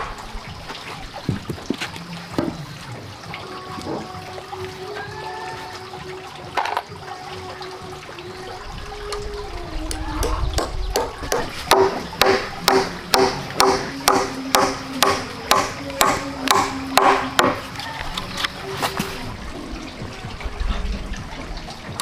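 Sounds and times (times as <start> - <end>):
hammer driving a nail into wood: 11.3 - 17.6.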